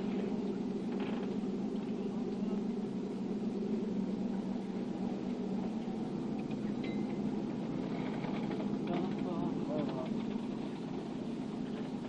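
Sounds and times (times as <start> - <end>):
ferry engine droning: 0.0 - 12.0.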